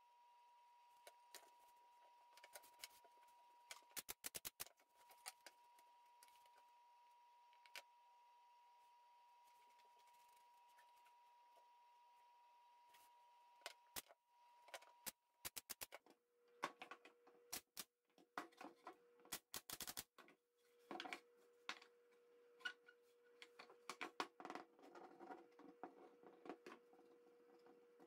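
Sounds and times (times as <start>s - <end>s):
faint steady hum: 4.8s - 15.4s.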